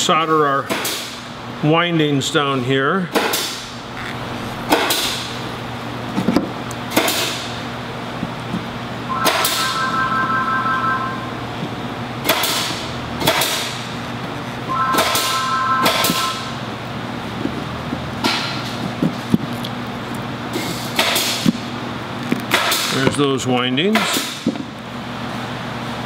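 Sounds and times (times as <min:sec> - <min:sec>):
thin high tone: 0:09.1 - 0:11.6, 0:14.7 - 0:16.7.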